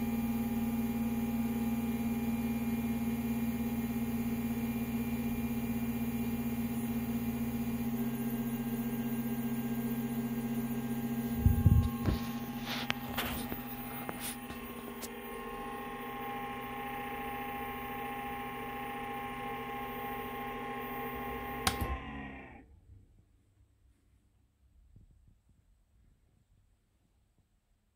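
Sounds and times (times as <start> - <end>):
electrical hum and whine: 3.8 - 22.7
rocker switch click: 21.6 - 22.0.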